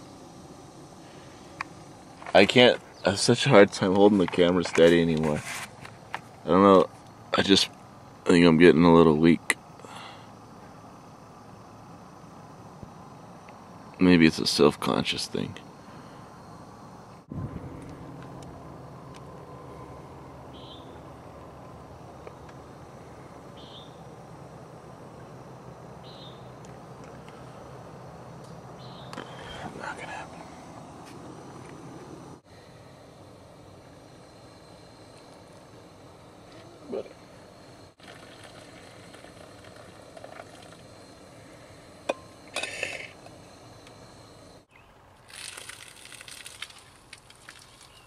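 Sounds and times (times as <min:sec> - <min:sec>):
wind on microphone: 0:17.3 - 0:17.9
bird chirping: 0:20.5 - 0:21.1, 0:23.5 - 0:24.1, 0:26.0 - 0:26.6, 0:28.4 - 0:30.2.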